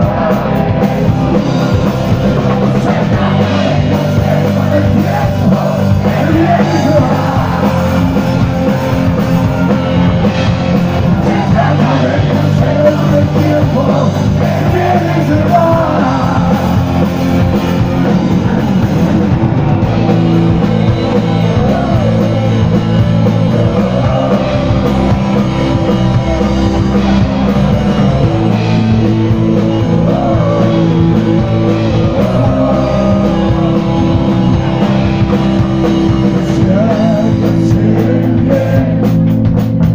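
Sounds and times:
bass guitar: 0:00.0 - 0:39.9
drum kit: 0:00.0 - 0:39.9
electric guitar: 0:00.0 - 0:39.9
person singing and shouting: 0:02.8 - 0:08.3, 0:21.1 - 0:25.4.

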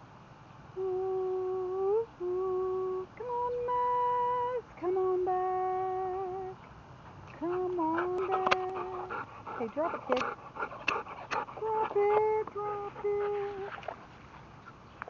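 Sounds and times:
dog whining: 0:07.8 - 0:13.9.

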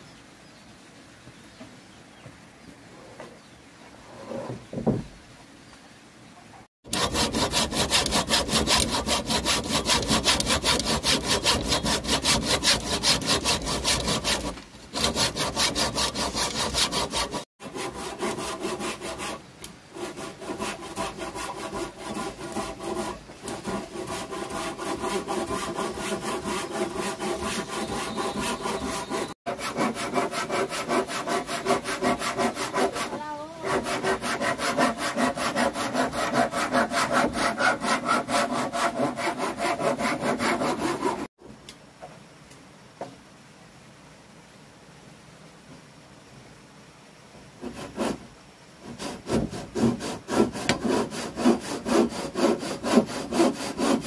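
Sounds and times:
hand saw cutting wood: 0:06.8 - 0:41.3, 0:47.6 - 0:48.2, 0:48.8 - 0:54.0.

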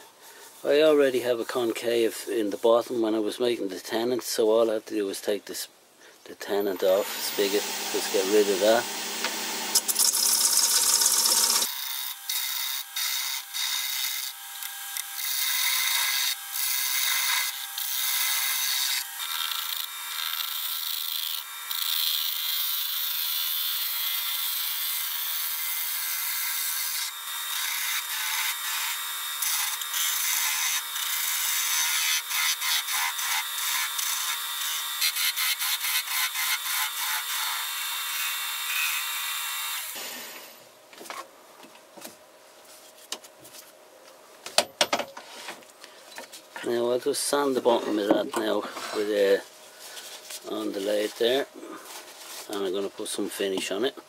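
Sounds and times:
gouge cutting wood on a lathe: 0:06.8 - 0:39.0.

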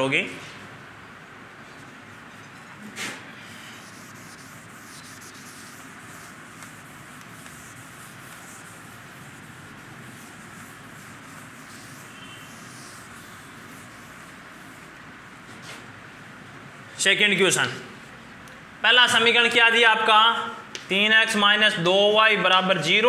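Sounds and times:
faint steady hiss: 0:01.4 - 0:15.5
duster wiping blackboard: 0:01.8 - 0:15.9.

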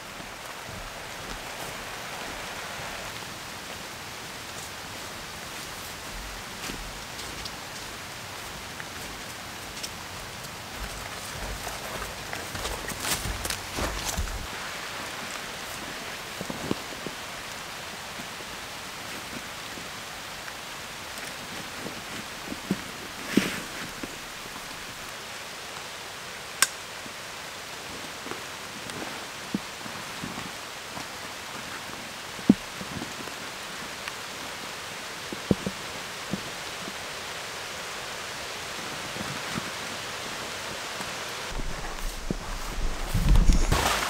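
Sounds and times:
rain on foliage: 0:00.0 - 0:44.0
close rustling: 0:09.2 - 0:14.5, 0:41.5 - 0:44.0
low thumping: 0:41.5 - 0:44.0.

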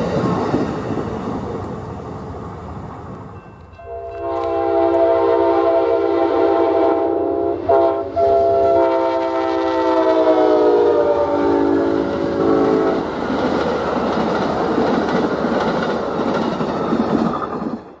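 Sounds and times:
locomotive horn chord: 0:03.8 - 0:13.0.

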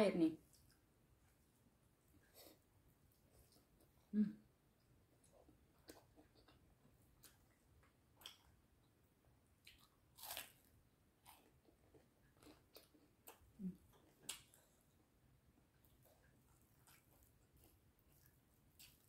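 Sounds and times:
bite into fried food: 0:09.7 - 0:10.6.

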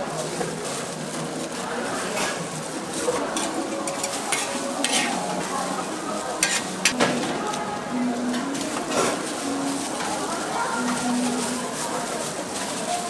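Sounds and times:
street stall din: 0:00.0 - 0:13.0
food sizzling on griddle: 0:02.2 - 0:07.0.

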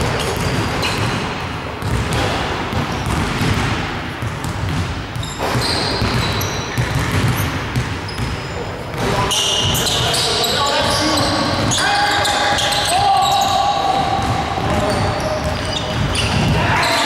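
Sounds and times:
basketball bouncing on wooden floor: 0:00.0 - 0:10.2, 0:14.0 - 0:16.6.

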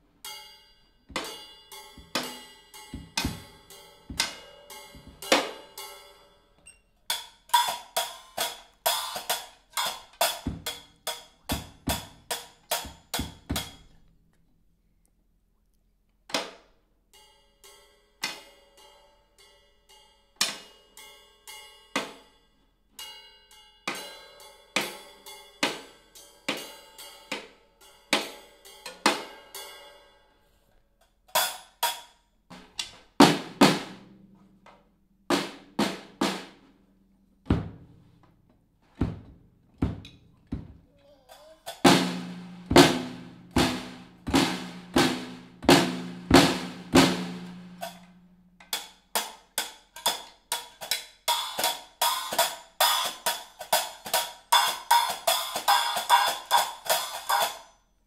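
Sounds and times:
drum strikes: 0:41.8 - 0:48.0.

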